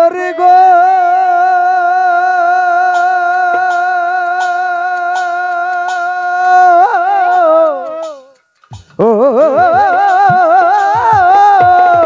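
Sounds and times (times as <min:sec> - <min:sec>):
man singing a long note: 0:00.0 - 0:12.0
keyboard accompaniment: 0:02.6 - 0:12.0
sharp percussion taps: 0:02.8 - 0:12.0.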